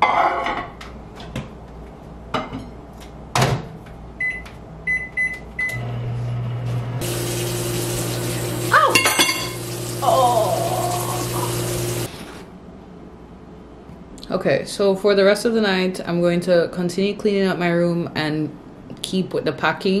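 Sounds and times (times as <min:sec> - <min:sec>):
microwave oven humming: 0:04.2 - 0:12.5
kitchen tap running: 0:07.0 - 0:12.1.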